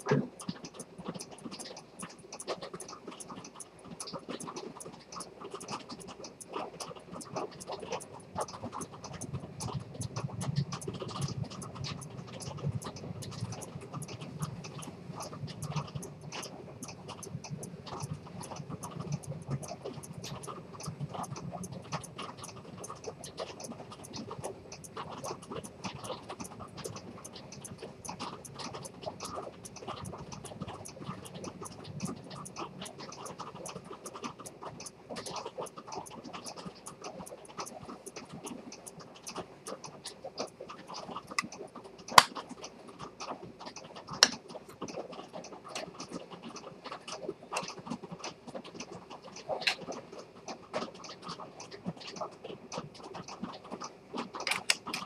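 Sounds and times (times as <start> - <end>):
pocket watch ticking: 0.0 - 39.8.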